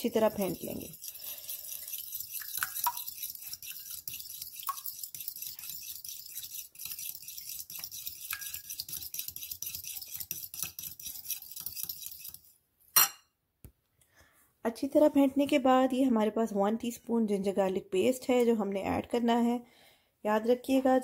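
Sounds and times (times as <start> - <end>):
fork beating eggs in glass bowl: 0.0 - 12.6.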